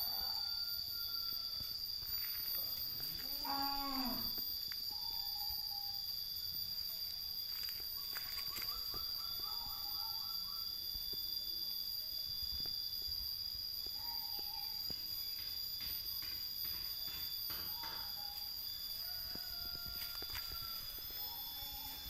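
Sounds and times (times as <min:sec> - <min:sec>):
high-pitched insect drone: 0:00.0 - 0:22.0.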